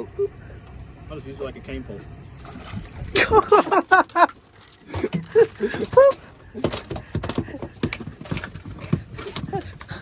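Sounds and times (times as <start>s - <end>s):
fish thrashing on boat deck: 2.2s - 10.0s.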